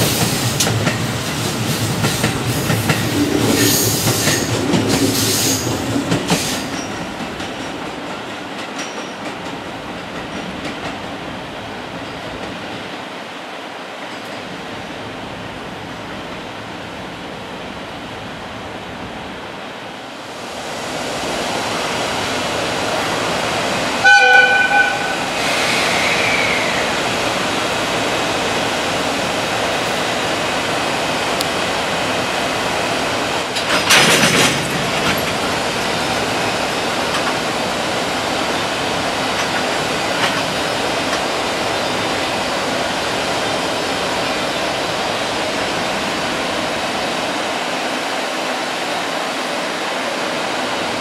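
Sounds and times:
freight train running noise: 0:00.0 - 0:51.0
locomotive horn blast: 0:24.0 - 0:25.4
loud burst of noise: 0:25.2 - 0:27.2
brief squeal: 0:25.4 - 0:26.9.

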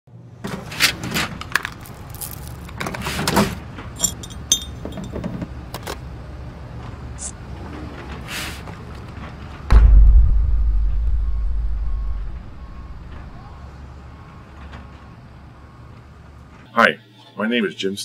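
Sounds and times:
ringing metallic clinks: 0:04.0 - 0:05.2
small metal parts jangling: 0:04.0 - 0:05.3.

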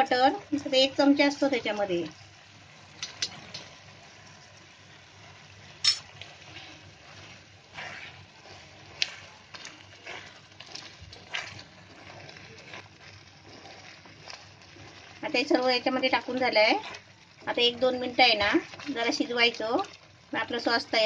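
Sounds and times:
faint sizzle of sauce: 0:00.0 - 0:21.0
spatula scraping sauce in pan: 0:05.0 - 0:19.2.

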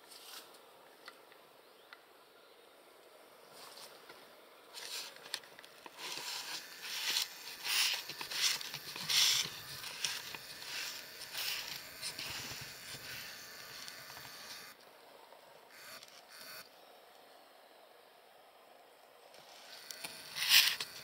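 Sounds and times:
rustling and crackling: 0:03.5 - 0:14.8.

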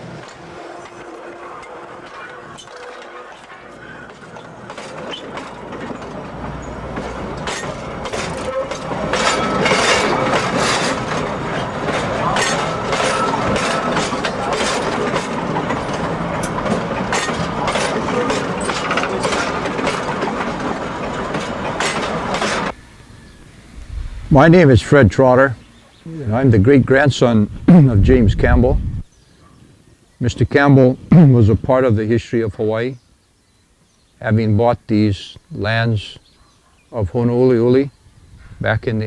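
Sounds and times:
train wheels clacking on rails: 0:00.0 - 0:22.8
train rumble: 0:00.0 - 0:25.8.

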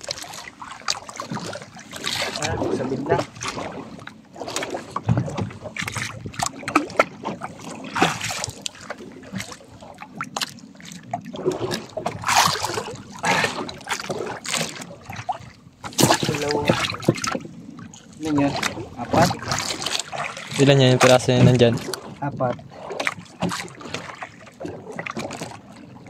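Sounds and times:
short splashes: 0:00.0 - 0:09.6, 0:11.3 - 0:17.4, 0:18.1 - 0:25.6
water sloshing against boat hull: 0:00.0 - 0:26.0.

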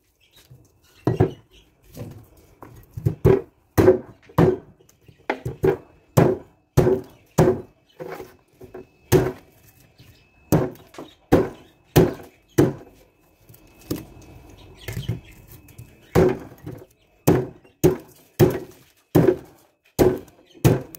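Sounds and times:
cleaver chopping meat on wooden block: 0:03.2 - 0:04.7, 0:05.3 - 0:07.7, 0:10.5 - 0:12.9, 0:17.2 - 0:20.9.

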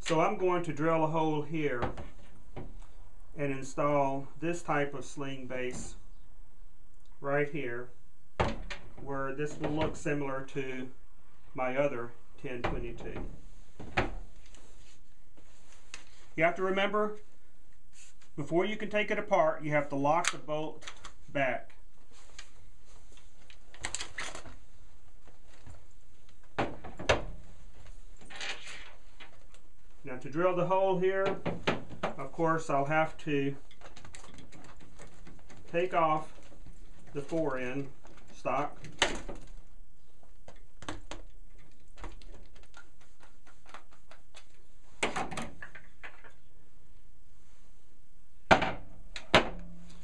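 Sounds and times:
rustle of handling: 0:13.3 - 0:16.5, 0:17.2 - 0:18.5, 0:20.8 - 0:26.6, 0:31.7 - 0:45.0
small clicks and knocks: 0:40.2 - 0:46.5.

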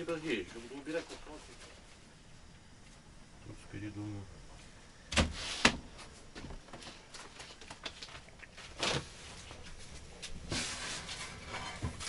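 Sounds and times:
rustling scrape: 0:05.3 - 0:06.1, 0:08.6 - 0:12.0.

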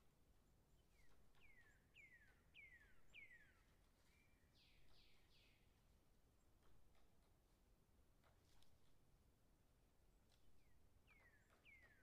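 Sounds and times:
distant woodpecker whistled calls: 0:00.7 - 0:05.8, 0:10.6 - 0:12.0.

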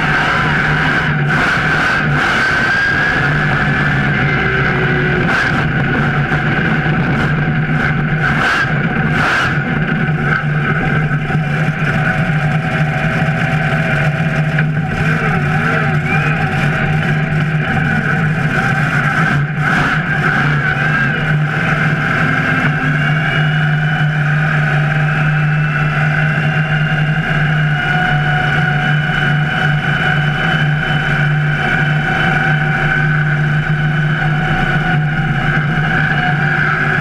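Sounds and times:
monster truck engine running: 0:00.0 - 0:37.0.

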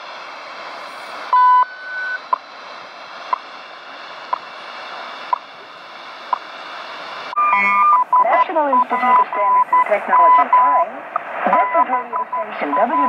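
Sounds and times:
radio static hiss: 0:00.0 - 0:13.0
time signal beep: 0:01.3 - 0:02.3, 0:07.4 - 0:10.8, 0:11.5 - 0:13.0.

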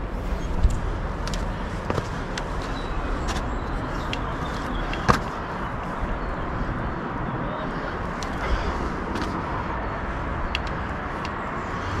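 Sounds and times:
steady rushing noise: 0:00.0 - 0:12.0
footsteps on steep trail: 0:00.1 - 0:06.1, 0:08.1 - 0:09.6.

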